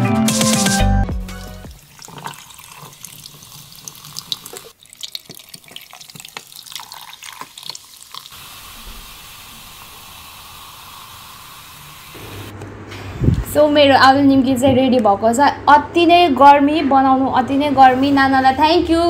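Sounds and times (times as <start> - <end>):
fizzy bubbles popping: 1.2 - 11.5
soft drink pouring into glass: 1.4 - 8.4.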